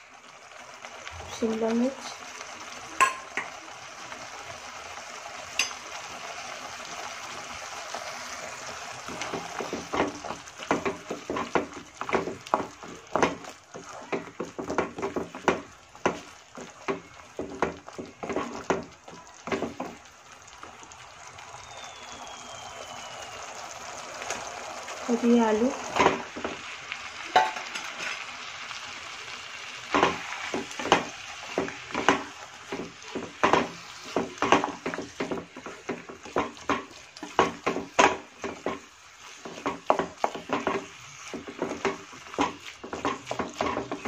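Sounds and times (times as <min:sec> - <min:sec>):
sauce sizzling in a pan: 0:00.0 - 0:44.0
wooden spatula scraping a pan: 0:07.9 - 0:20.0, 0:27.5 - 0:28.3, 0:30.0 - 0:44.0.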